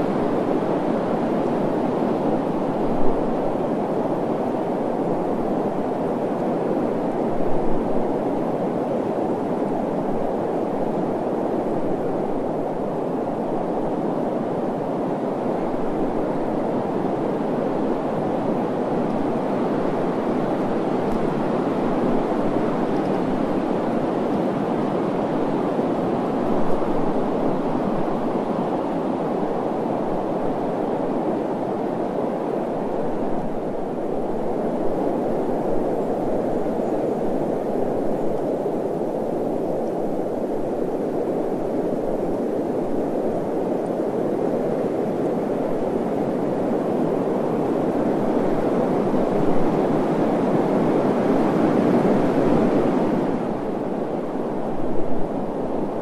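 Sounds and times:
steady rushing noise: 0.0 - 56.0.

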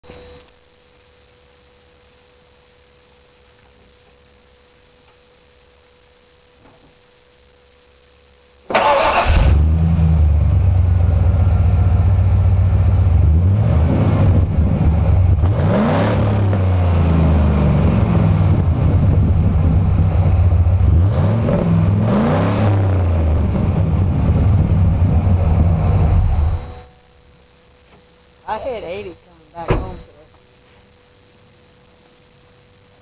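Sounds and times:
truck engine starting and idling: 8.7 - 26.8
engine revving: 8.8 - 26.8.

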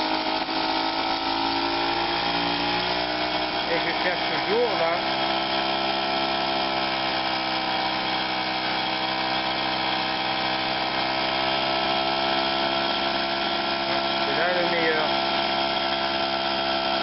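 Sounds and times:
moped engine idling: 3.6 - 17.0.

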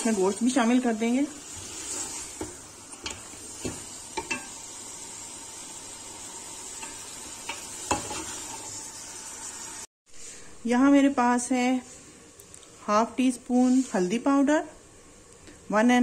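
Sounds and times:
bones sizzling in hot oil: 0.0 - 9.9
spatula scraping a pot: 1.4 - 4.5, 6.8 - 8.7.

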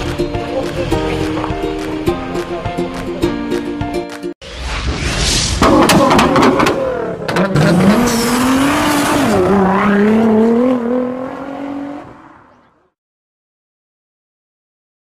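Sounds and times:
car engine revving: 5.6 - 12.6.

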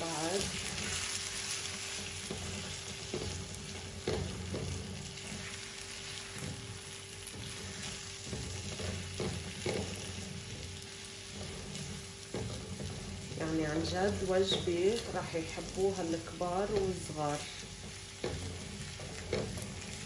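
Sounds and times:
food sizzling in a hot pan: 0.0 - 20.0
spatula scraping pan: 0.0 - 20.0.

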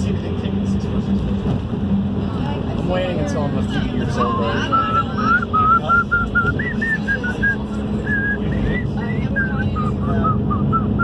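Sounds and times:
vehicle drone on road: 0.0 - 11.0
person whistling a tune: 4.3 - 11.0.

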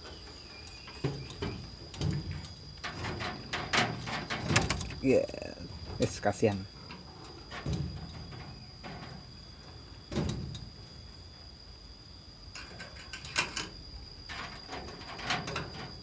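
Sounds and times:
high insect drone: 0.0 - 16.0
knocks on wire cage: 10.1 - 10.7.

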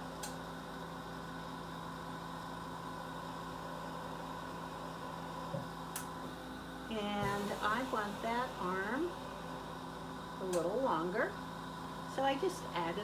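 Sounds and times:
electrical hum: 0.0 - 13.0
torch burning hiss: 7.0 - 10.8.

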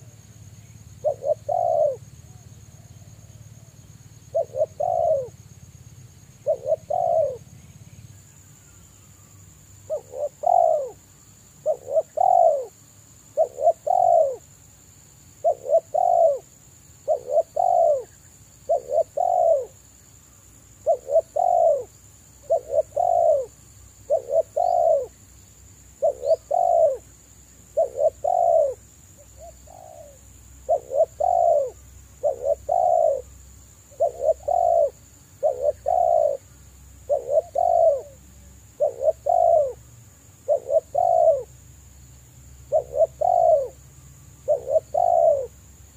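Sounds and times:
dove cooing: 1.0 - 3.0, 4.2 - 5.4, 6.4 - 7.5, 9.9 - 11.0, 11.6 - 14.5, 15.4 - 18.1, 18.7 - 19.8, 20.8 - 23.5, 24.1 - 25.2, 26.0 - 27.1, 27.7 - 33.3, 33.9 - 38.2, 38.8 - 41.5, 42.6 - 43.8, 44.4 - 45.6.

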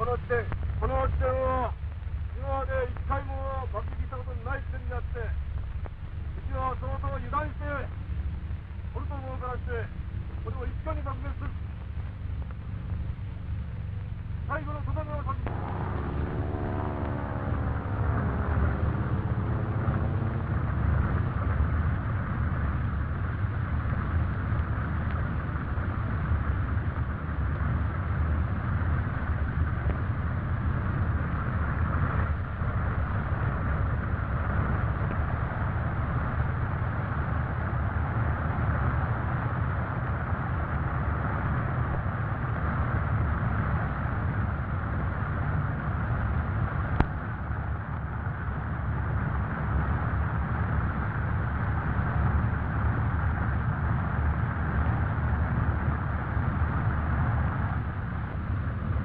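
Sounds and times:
falling whine: 0.0 - 42.5
piston aircraft engines droning: 0.0 - 59.0.

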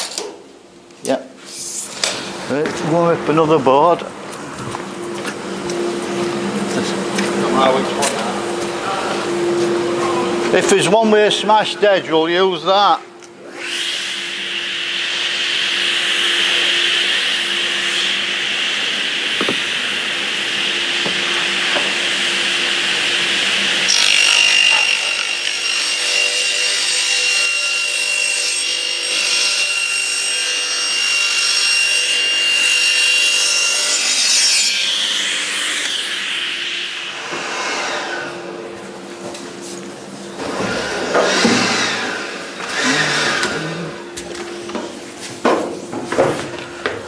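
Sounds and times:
table saw ripping wood: 19.3 - 36.2, 40.4 - 43.8.

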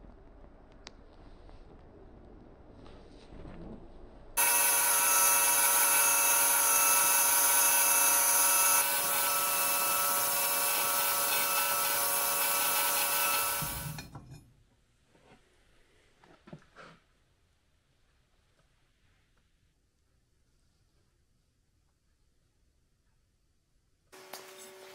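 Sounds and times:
belt grinder motor whine: 4.4 - 14.0.

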